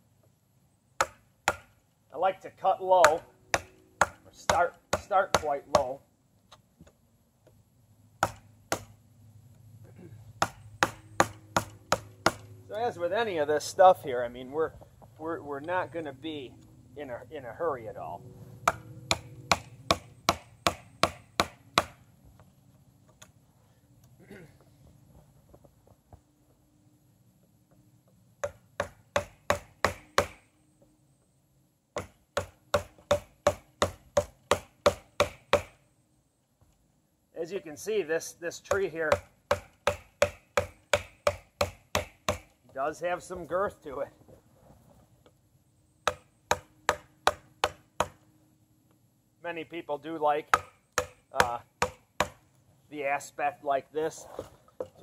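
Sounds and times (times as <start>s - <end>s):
knife chopping into wood: 3.0s - 6.0s, 8.2s - 8.9s, 10.4s - 12.4s, 18.6s - 22.0s, 32.0s - 35.7s, 38.7s - 42.5s, 50.5s - 52.4s.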